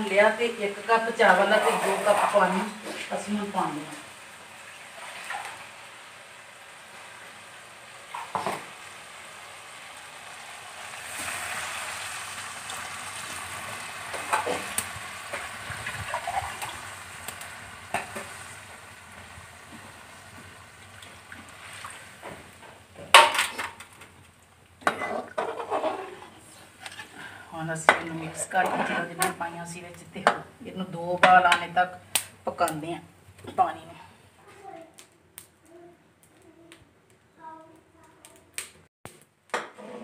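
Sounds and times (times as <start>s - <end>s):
food hissing and sizzling: 0.0s - 27.5s
metal spatula scraping pot: 1.4s - 3.2s, 24.8s - 27.3s, 27.9s - 29.3s, 39.7s - 40.0s.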